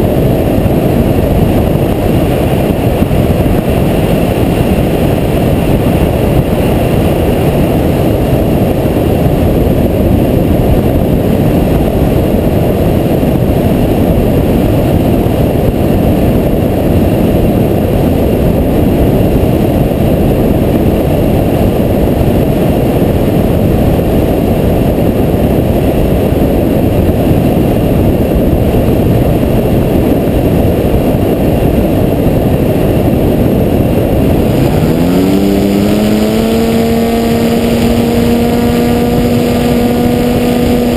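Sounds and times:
electric motor and propeller whine: 0.0 - 40.9
wind buffeting camera: 0.0 - 40.9.

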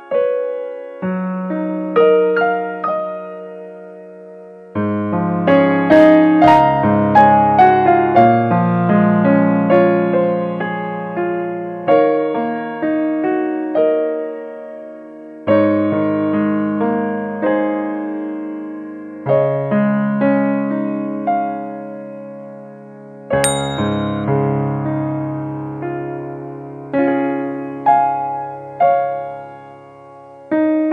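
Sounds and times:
piano music: 23.4 - 24.8.

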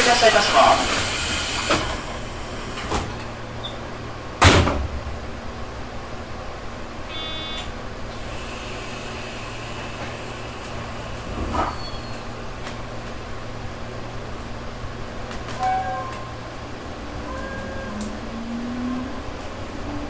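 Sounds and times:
loud air hiss: 0.0 - 3.1, 8.2 - 11.3
air conditioning hum: 0.0 - 20.0
short electronic beep: 7.1 - 7.7, 15.6 - 16.3.

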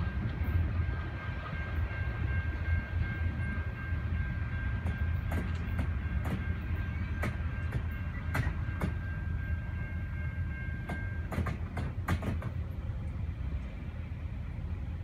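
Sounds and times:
train wheels rumbling on rails: 0.0 - 15.0
wheels clicking over rail joints: 4.8 - 9.0, 10.8 - 13.2.

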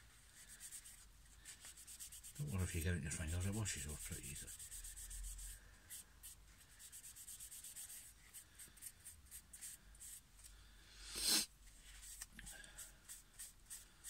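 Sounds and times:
paper towel scrubbing wood: 0.5 - 5.5.

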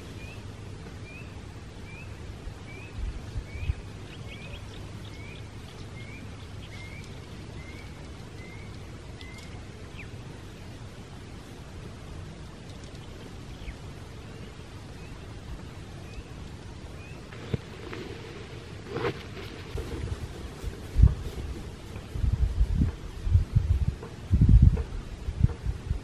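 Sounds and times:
wind rumble on microphone: 2.2 - 26.0
bird calling: 2.7 - 10.2.

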